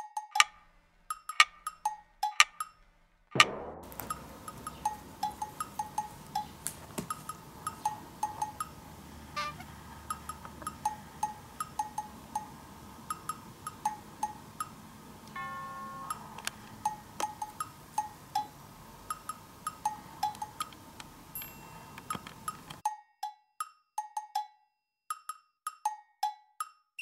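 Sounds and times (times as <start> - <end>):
bouncy percussive background music: 3.4 - 8.9, 22.5 - 27.0
held chime-like tone: 15.4 - 17.5, 21.4 - 22.1.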